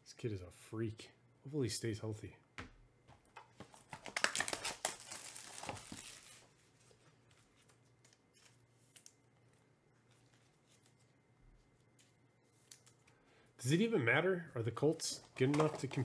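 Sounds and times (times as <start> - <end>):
foil wrapper tearing and crinkling: 3.7 - 6.5.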